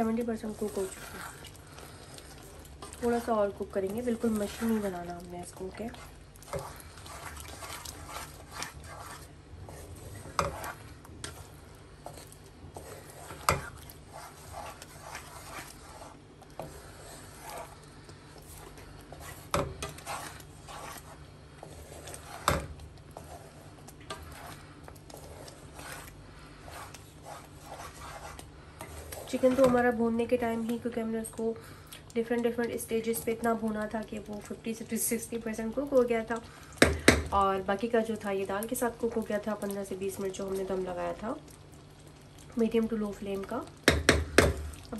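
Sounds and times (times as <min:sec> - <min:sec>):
spatula scraping a pan: 0:00.0 - 0:30.1
knocks on a pan: 0:43.9 - 0:44.6.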